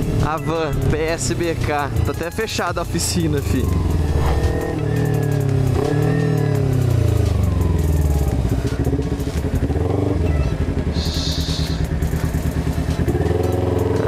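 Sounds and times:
motorcycle engine slowing: 0:03.0 - 0:10.0, 0:11.9 - 0:14.0.

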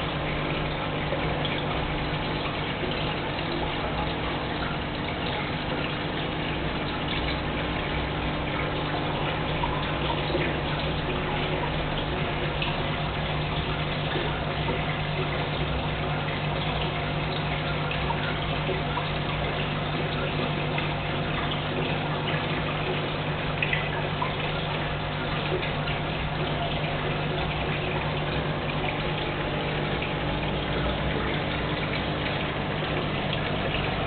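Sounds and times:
air bubbles gurgling: 0:00.0 - 0:34.0
pump humming: 0:00.0 - 0:34.0.

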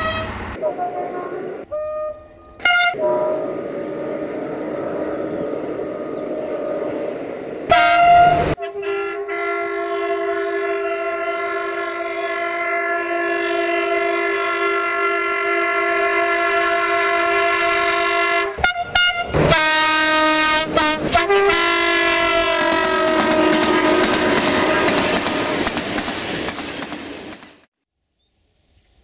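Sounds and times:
locomotive horn blasts: 0:00.0 - 0:03.8, 0:07.7 - 0:25.6
passing freight train clatter: 0:00.0 - 0:27.7.

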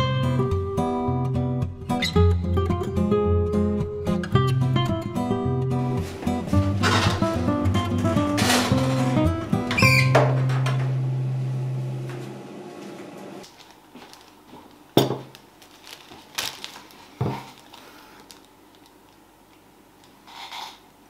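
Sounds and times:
background music: 0:00.0 - 0:12.0
dishes knocking on table: 0:15.0 - 0:15.3.

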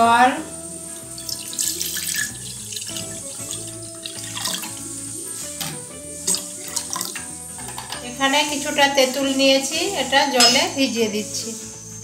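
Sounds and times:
background music: 0:00.0 - 0:12.0
water pouring into metal bowl: 0:00.8 - 0:08.0.

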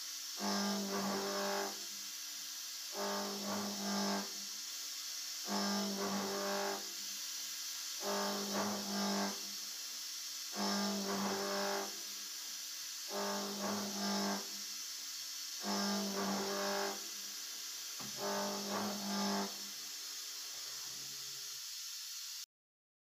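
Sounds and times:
steady high hiss: 0:00.0 - 0:22.5
milling cutter pitched hum: 0:00.4 - 0:01.9, 0:02.9 - 0:04.5, 0:05.4 - 0:07.0, 0:08.0 - 0:09.6, 0:10.5 - 0:12.1, 0:13.1 - 0:14.7, 0:15.6 - 0:21.4.

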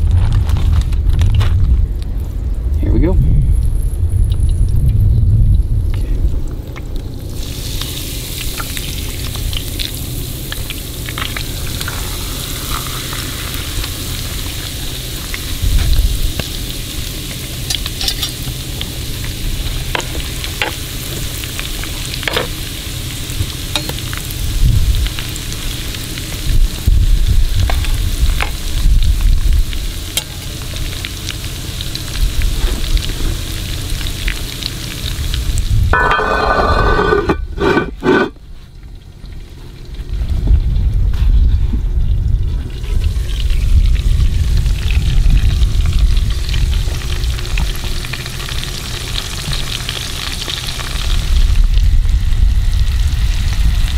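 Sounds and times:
low rumbles: 0:00.0 - 0:11.9, 0:39.8 - 0:48.1
food sizzling in hot oil: 0:03.8 - 0:38.7, 0:42.6 - 0:53.9
oil popping: 0:04.2 - 0:22.8.

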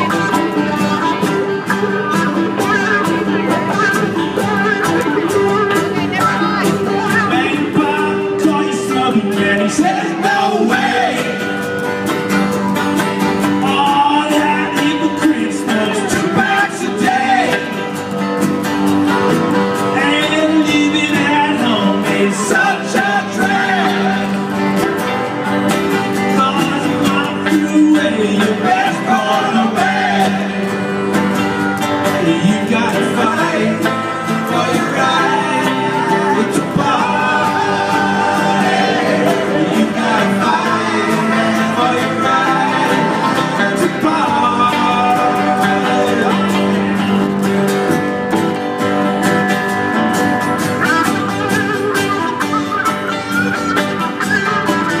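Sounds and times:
person singing: 0:00.0 - 0:11.9, 0:13.4 - 0:18.3, 0:19.8 - 0:25.2, 0:26.0 - 0:47.4
band playing country song: 0:00.0 - 0:55.0.

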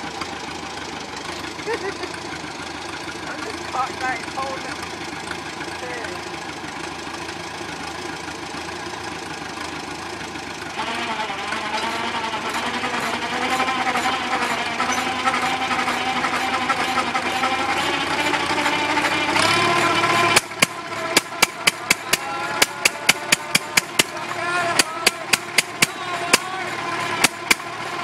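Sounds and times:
tractor engine drone: 0:00.0 - 0:28.0
small engine firing bangs: 0:18.6 - 0:24.2, 0:27.2 - 0:27.7.

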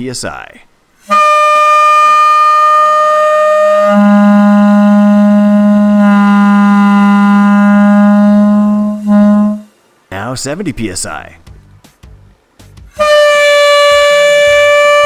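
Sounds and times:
air horn blast: 0:01.0 - 0:09.8, 0:12.9 - 0:15.0.

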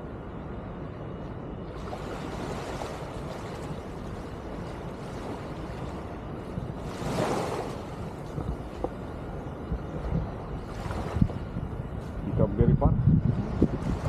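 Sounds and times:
small waves at water's edge: 0:00.1 - 0:12.2
wind rushing: 0:01.7 - 0:14.0.

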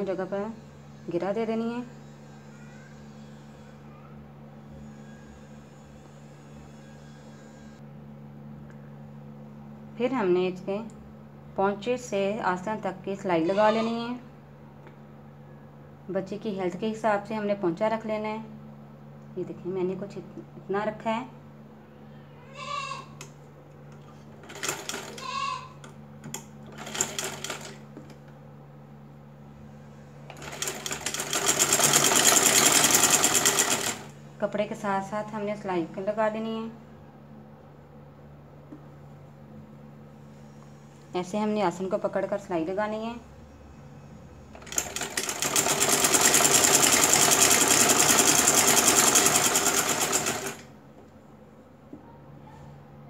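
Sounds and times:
sewing machine stitching: 0:24.4 - 0:25.2, 0:26.7 - 0:27.8, 0:30.3 - 0:34.1, 0:44.6 - 0:50.7.

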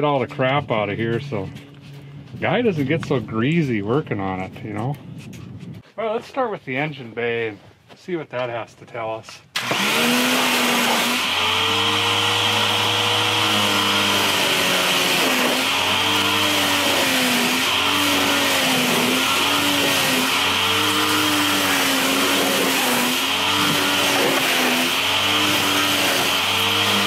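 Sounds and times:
pressure washer motor: 0:09.6 - 0:27.0.

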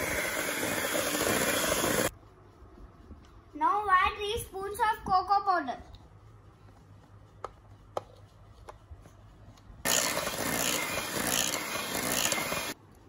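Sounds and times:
electric hand mixer whipping batter: 0:00.0 - 0:02.1, 0:09.9 - 0:12.8.

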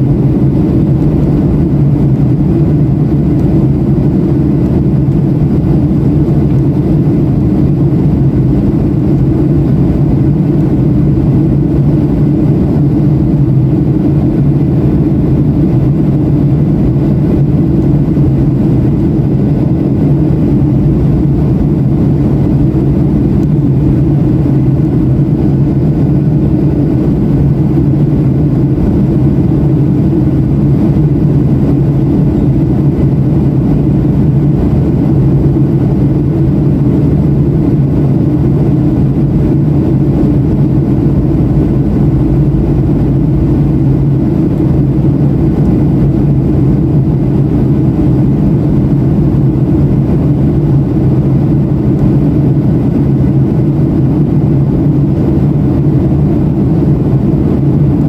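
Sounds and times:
airplane cabin engine drone: 0:00.0 - 0:58.0.

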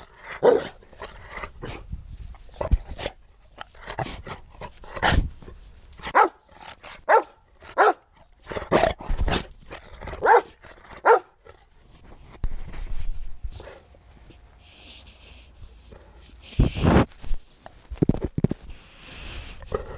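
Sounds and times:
dog barking: 0:06.1 - 0:06.4, 0:07.1 - 0:08.0, 0:10.2 - 0:11.4.

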